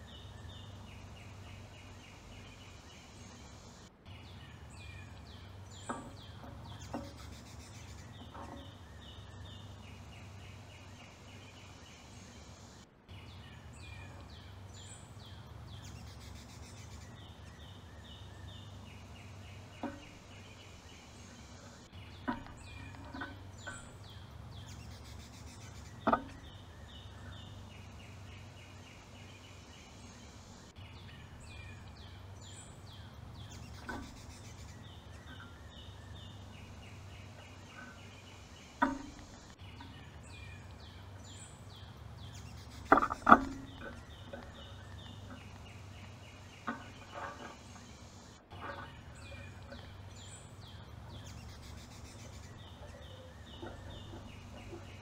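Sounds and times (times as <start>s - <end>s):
low background hum: 0.0s - 55.0s
songbird singing: 0.0s - 55.0s.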